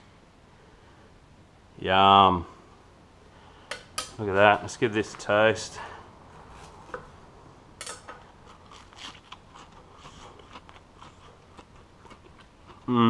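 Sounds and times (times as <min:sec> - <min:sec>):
knife cutting crunchy bread roll: 0:08.5 - 0:12.3.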